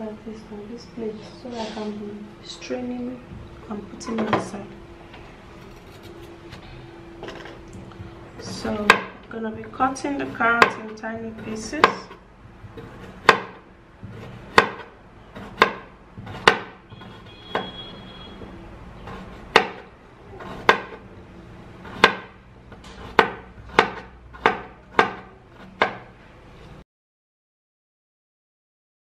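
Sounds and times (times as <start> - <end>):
knife chopping carrot on board: 10.6 - 17.8, 19.1 - 21.0, 21.8 - 26.1.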